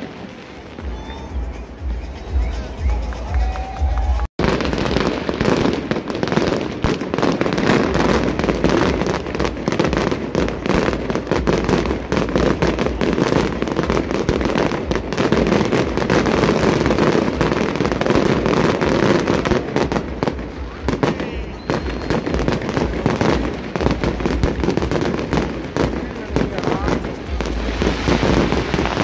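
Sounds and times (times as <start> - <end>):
fireworks bangs and crackling: 0.0 - 29.0.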